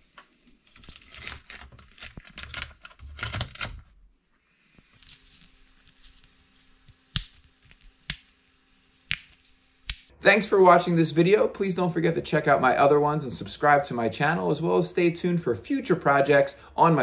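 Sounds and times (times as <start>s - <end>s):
plastic crackling and tearing: 0.2s - 3.9s.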